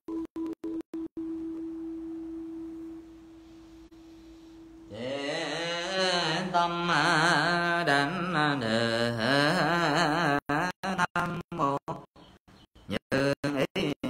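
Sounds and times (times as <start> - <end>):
person chanting: 4.9 - 12.1, 12.9 - 14.0.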